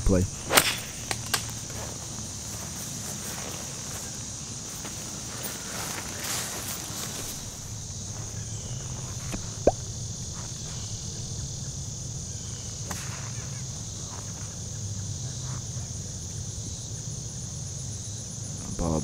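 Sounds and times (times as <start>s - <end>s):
insects chirring: 0.0s - 19.0s
sharp click: 0.4s - 1.6s.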